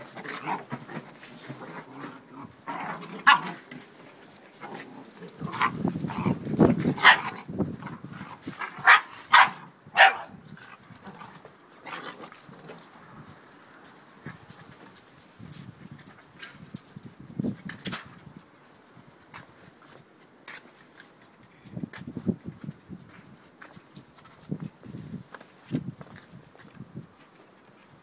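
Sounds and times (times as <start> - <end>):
puppies yapping and barking: 8.4 - 10.8.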